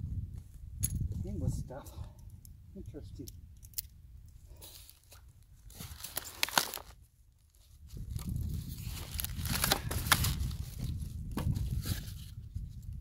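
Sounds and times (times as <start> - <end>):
packaging rustling and crinkling: 4.6 - 12.3.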